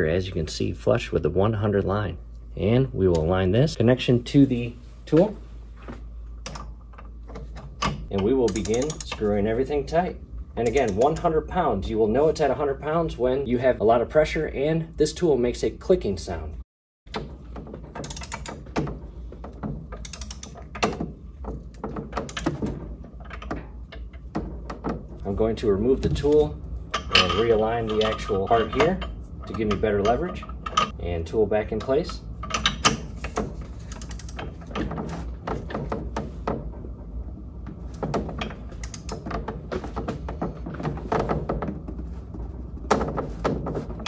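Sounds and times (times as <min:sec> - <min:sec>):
torque wrench ratchet clicking: 0:20.0 - 0:20.5
metal tool clinking: 0:27.0 - 0:31.0.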